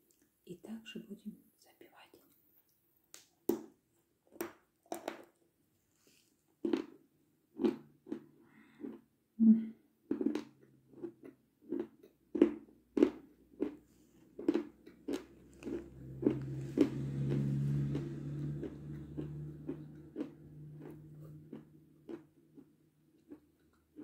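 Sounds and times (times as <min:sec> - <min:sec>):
crunchy chewing: 0:06.0 - 0:09.1, 0:10.1 - 0:24.0
low steady hum: 0:14.8 - 0:24.0.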